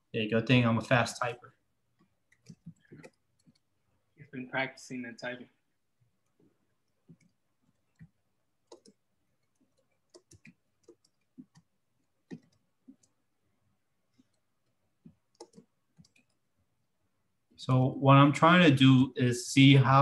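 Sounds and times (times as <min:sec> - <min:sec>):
keyboard typing: 0:01.9 - 0:03.7, 0:06.2 - 0:13.2, 0:14.1 - 0:16.5.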